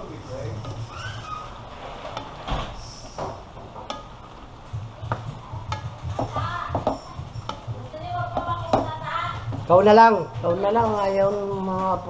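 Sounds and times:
spatula scraping wok: 0:00.0 - 0:12.0.

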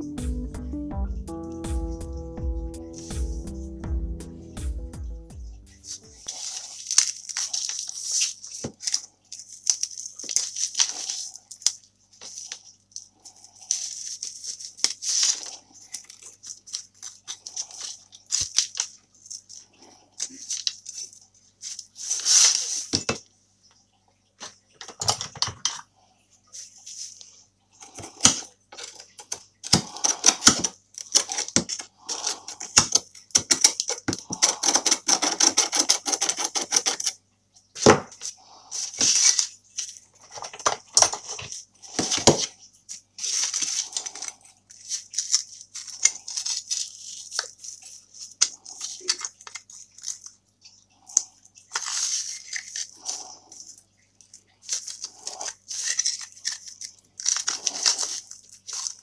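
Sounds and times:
wood splintering: 0:27.9 - 0:37.2.

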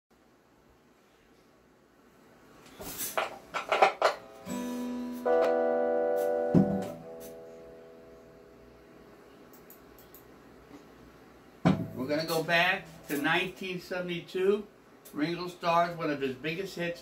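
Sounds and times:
acoustic guitar chords strummed: 0:04.0 - 0:08.6, 0:11.7 - 0:13.3
knocks on guitar body: 0:06.6 - 0:07.0, 0:11.6 - 0:12.0.

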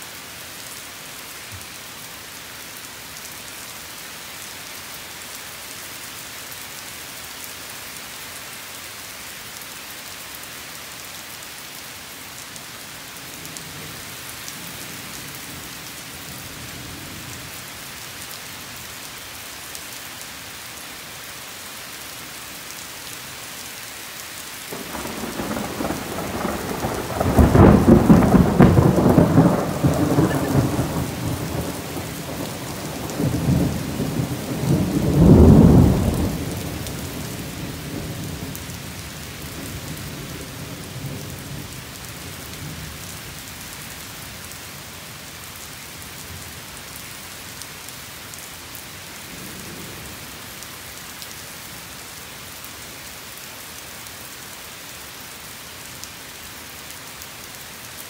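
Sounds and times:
heavy rain on foliage: 0:00.0 - 0:58.0
thunder rolling: 0:24.7 - 0:36.3.

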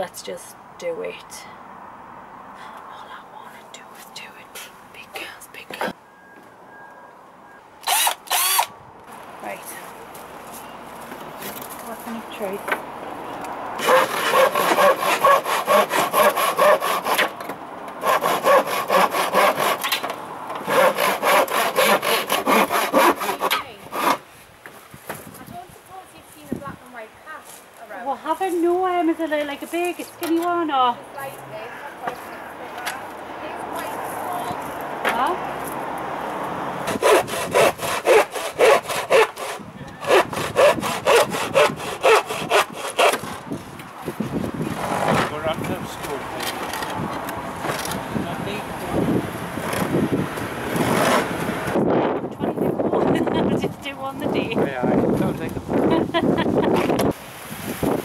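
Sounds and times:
hand saw cutting timber: 0:07.8 - 0:08.7, 0:13.8 - 0:24.3, 0:36.8 - 0:43.6, 0:50.7 - 0:51.8.

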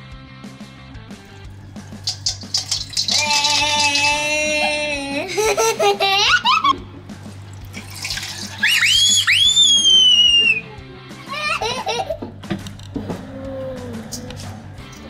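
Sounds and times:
background music with swooping tones: 0:00.0 - 0:15.0
liquid pouring and splashing: 0:01.6 - 0:04.2, 0:07.2 - 0:09.2.

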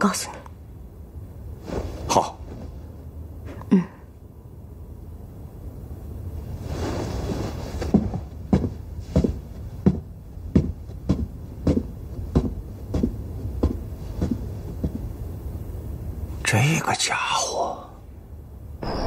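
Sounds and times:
low rumble: 0:18.7 - 0:19.0.

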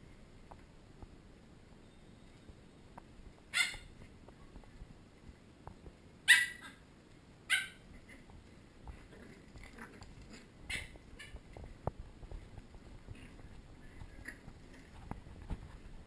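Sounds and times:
puppies yipping: 0:03.5 - 0:03.9, 0:06.3 - 0:06.8, 0:07.5 - 0:07.8, 0:10.7 - 0:11.4.

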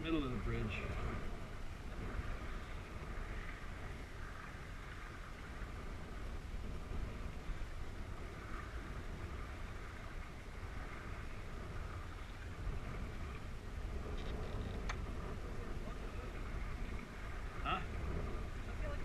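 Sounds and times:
water rushing along boat hull: 0:00.0 - 0:19.0
wind rumbling on microphone: 0:00.0 - 0:19.0.

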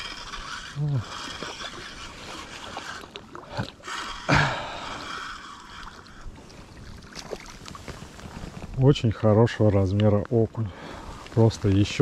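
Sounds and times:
fish splashing in water: 0:00.0 - 0:08.7.

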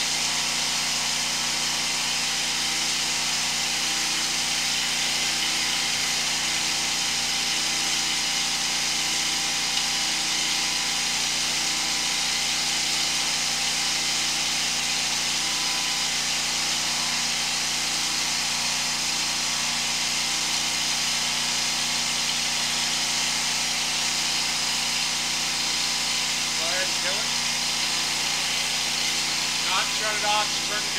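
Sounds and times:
engine humming with hiss: 0:00.0 - 0:00.3, 0:26.6 - 0:30.9.

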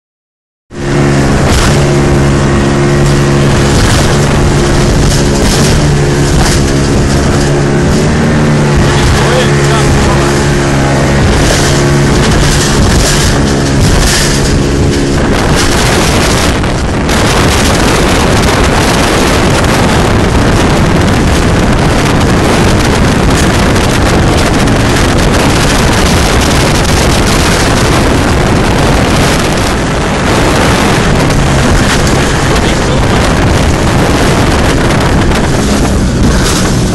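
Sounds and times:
outboard motor: 0:00.7 - 0:36.9
wind noise on microphone: 0:00.7 - 0:36.9.

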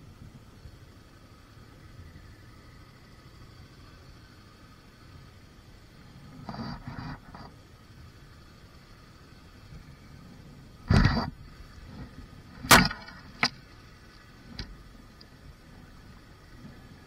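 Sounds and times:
faint steady background: 0:00.0 - 0:17.0
motorcycle knocks and thumps: 0:10.8 - 0:13.7.

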